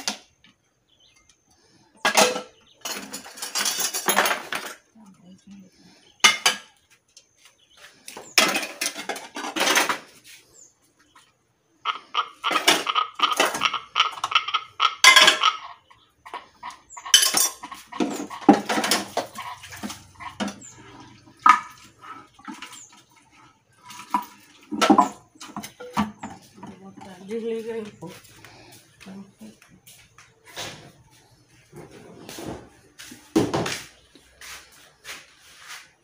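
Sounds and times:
metal pots clattering: 2.0s - 5.0s, 6.2s - 6.8s, 8.1s - 10.3s, 11.9s - 29.6s.

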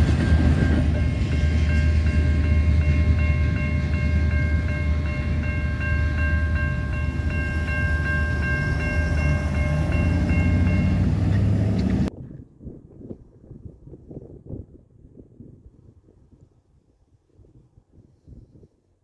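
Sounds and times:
crossing warning bell ringing: 0.0s - 12.1s
low engine rumble: 0.0s - 12.2s
faint wind noise: 0.0s - 19.0s.

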